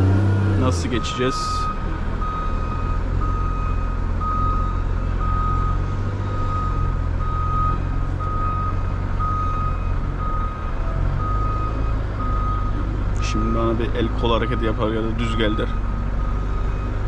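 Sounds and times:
truck engine running: 0.0s - 17.0s
reversing alarm beeping: 0.7s - 17.0s.

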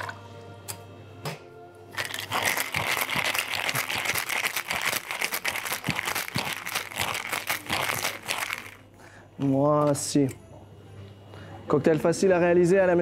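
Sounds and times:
ice rattling in cocktail shaker: 2.0s - 8.8s.

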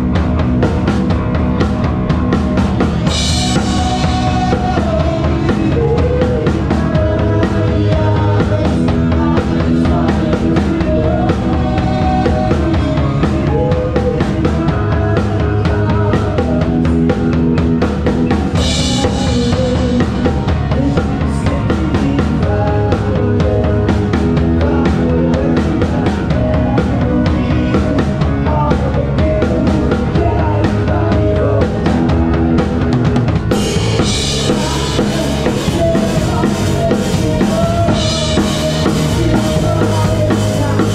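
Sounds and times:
bass drum and snare beat: 0.0s - 40.9s
live band playing: 0.0s - 40.9s.

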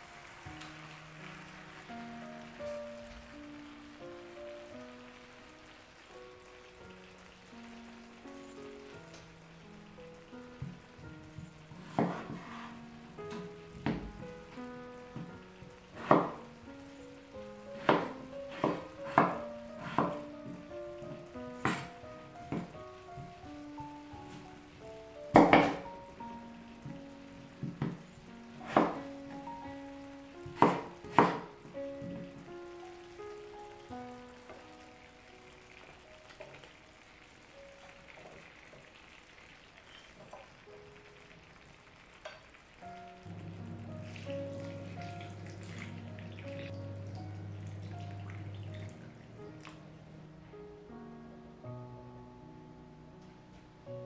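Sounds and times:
food sizzling in a pan: 0.0s - 49.6s
quiet background music: 0.0s - 54.0s
utensil knocking in a pan: 17.8s - 20.6s, 30.4s - 32.4s.

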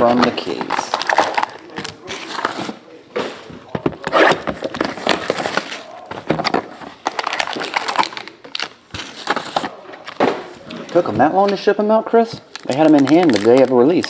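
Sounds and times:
foil pack rustling and crinkling: 12.4s - 14.0s.

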